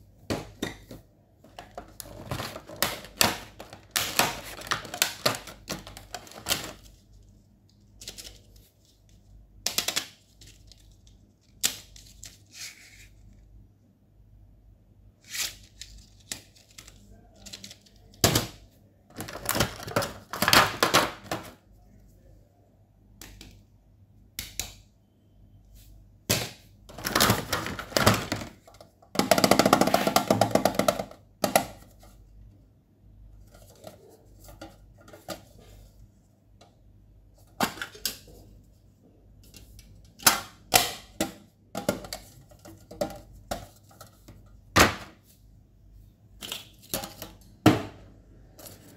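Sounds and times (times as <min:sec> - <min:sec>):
rustling scrape: 0:12.5 - 0:13.2.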